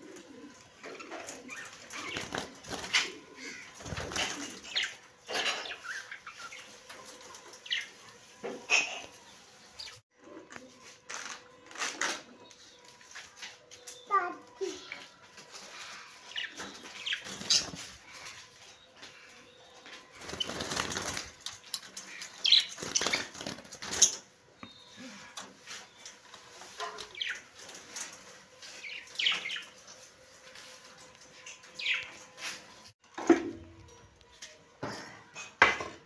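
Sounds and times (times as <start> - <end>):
wings fluttering: 1.0 - 5.0, 15.6 - 18.5, 20.1 - 24.3.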